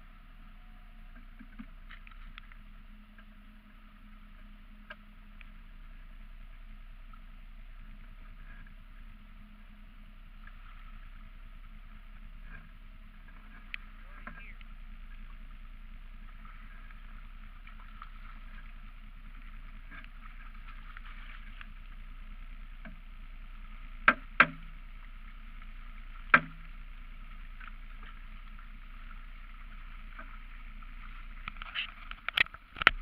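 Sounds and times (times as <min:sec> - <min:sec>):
mud motor idling: 0:00.0 - 0:33.0.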